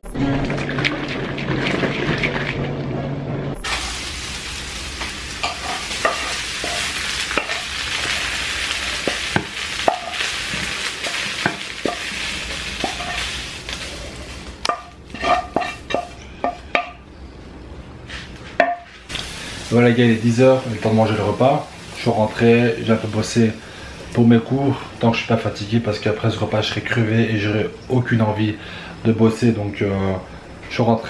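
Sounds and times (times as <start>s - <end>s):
food sizzling in a frying pan: 3.6s - 16.8s, 19.1s - 27.1s
wooden spoon scraping a pan: 5.4s - 17.0s.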